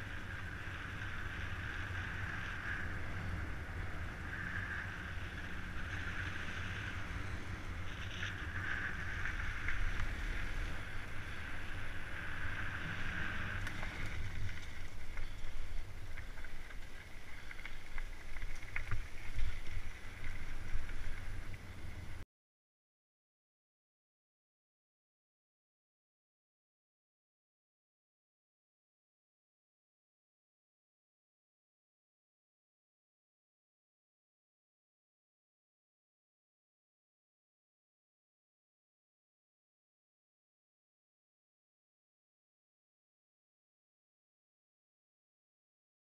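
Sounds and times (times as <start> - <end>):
bike tyres rumbling on pavement: 0.0 - 22.2.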